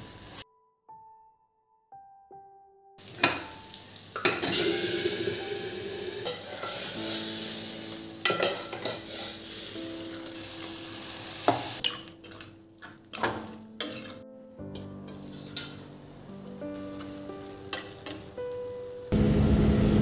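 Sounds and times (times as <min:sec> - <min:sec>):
hot oil sizzling: 0:00.0 - 0:00.4, 0:03.0 - 0:19.1
soft background music: 0:00.4 - 0:19.2
metal utensils clinking: 0:03.1 - 0:10.5, 0:11.5 - 0:16.0, 0:16.8 - 0:18.9.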